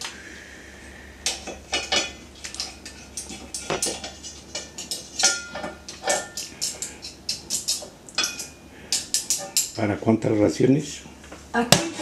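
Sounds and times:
metal utensils clinking on pot: 1.2s - 9.9s.

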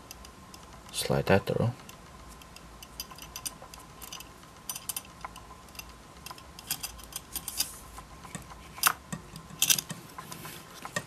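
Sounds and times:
metal strap fittings clinking: 2.4s - 10.0s.

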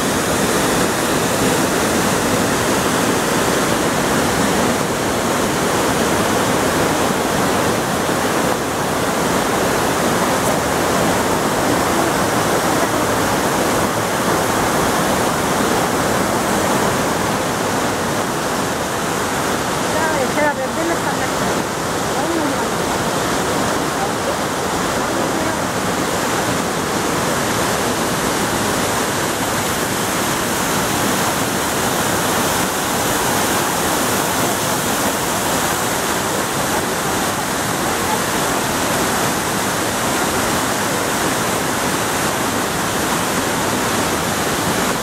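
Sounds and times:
waterfall and stream rushing: 0.0s - 45.0s.

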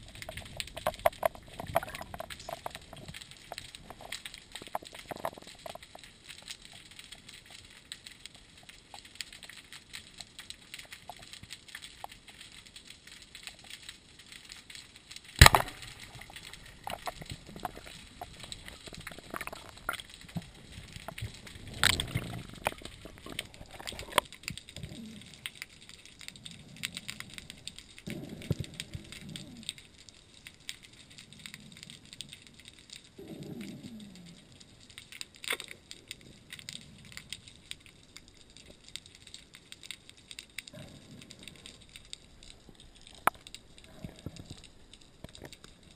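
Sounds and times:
faint underwater crackling clicks: 0.0s - 45.9s
sharp underwater knocks: 15.4s - 16.0s.

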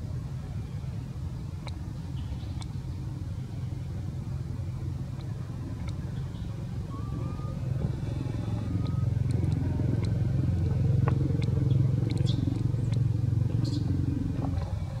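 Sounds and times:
engine idling hum: 0.0s - 15.0s
faint clicks: 1.6s - 1.8s, 5.1s - 6.4s, 8.6s - 14.9s.

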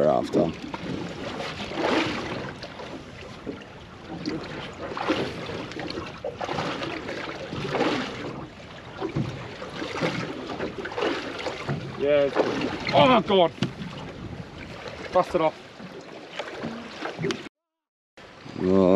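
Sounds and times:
water slapping against boat hull: 0.0s - 17.5s.

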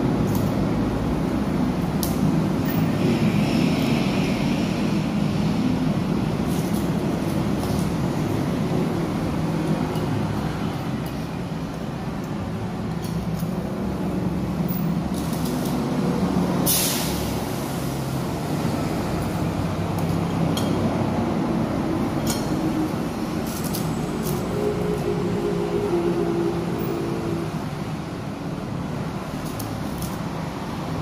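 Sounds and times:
vehicle engines rumbling: 0.0s - 31.0s
short sharp hiss: 16.6s - 17.5s.

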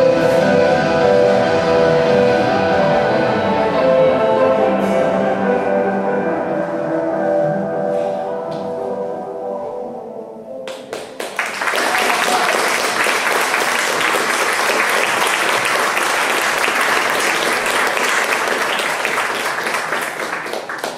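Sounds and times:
audience applause: 10.9s - 20.9s.

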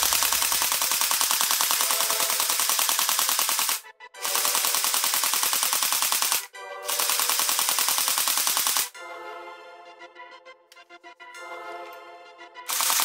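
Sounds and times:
toy gun rapid clicking shots: 0.0s - 9.0s, 12.7s - 13.0s.

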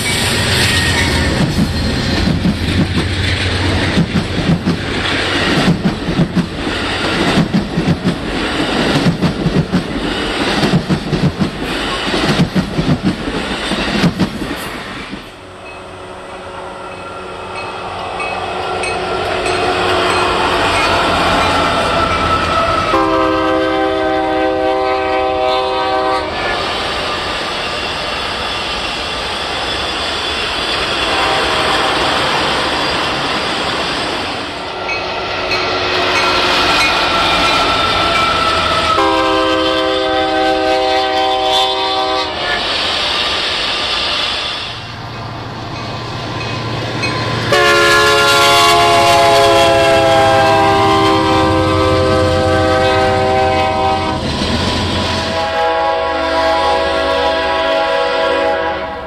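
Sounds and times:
freight train rumbling: 0.0s - 59.0s
locomotive air horn blasts: 18.5s - 26.6s, 31.0s - 32.3s, 38.2s - 42.6s, 47.5s - 54.2s, 55.2s - 59.0s.

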